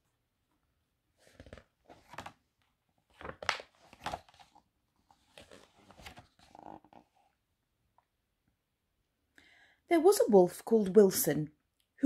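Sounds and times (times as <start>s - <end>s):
book pages rustling: 1.1s - 7.4s.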